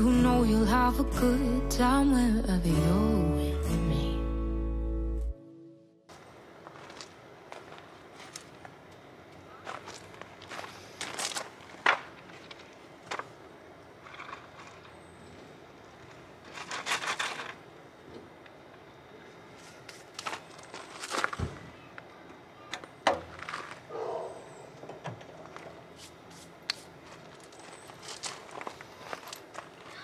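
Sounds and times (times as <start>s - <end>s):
footsteps crunching on gravel: 6.1s - 13.4s, 14.0s - 15.0s, 19.5s - 21.8s, 23.2s - 23.9s, 25.4s - 30.0s
wooden blocks set down on gravel: 9.6s - 13.4s, 14.0s - 15.0s, 16.0s - 17.6s, 19.9s - 21.7s, 22.8s - 23.9s.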